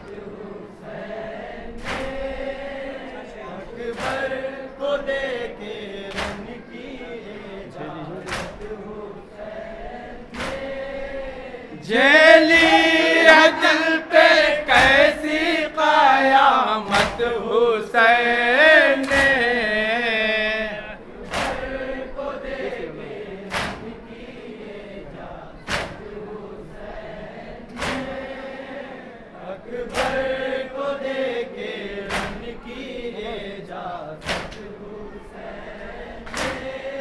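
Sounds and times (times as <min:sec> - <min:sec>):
men chanting in unison: 0:00.0 - 0:37.0
chest-beating slaps: 0:01.8 - 0:02.2, 0:03.9 - 0:04.4, 0:06.1 - 0:06.5, 0:08.2 - 0:08.8, 0:10.3 - 0:10.8, 0:14.7 - 0:15.2, 0:19.0 - 0:19.5, 0:21.2 - 0:21.7, 0:23.5 - 0:23.9, 0:25.6 - 0:26.1, 0:27.7 - 0:28.2, 0:29.9 - 0:30.3, 0:32.1 - 0:32.6, 0:34.2 - 0:34.7, 0:36.2 - 0:36.8.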